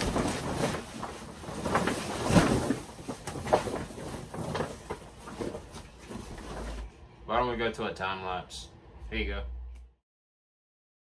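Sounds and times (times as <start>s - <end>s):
tent fabric rustling and crinkling: 0.0s - 6.9s.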